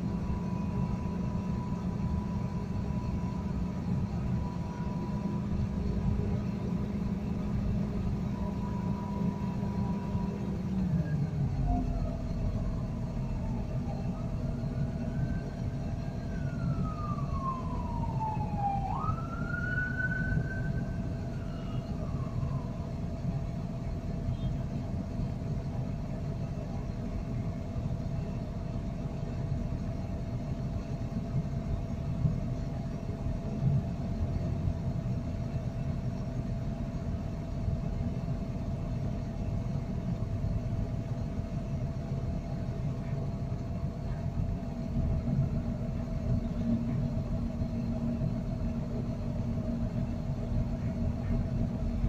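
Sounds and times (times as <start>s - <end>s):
siren-like wailing tone: 0.0s - 23.3s
heavy machinery rumble and hum: 0.0s - 52.0s.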